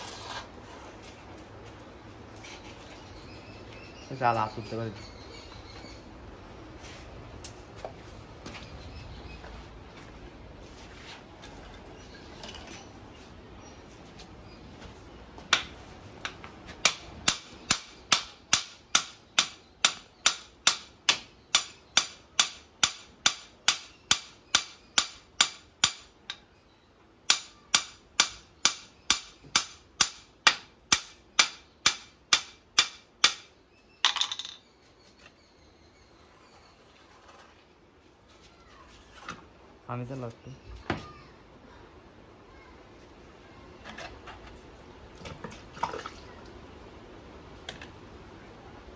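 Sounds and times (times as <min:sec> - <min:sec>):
hammer striking metal rod: 0:16.8 - 0:26.4, 0:27.3 - 0:33.5.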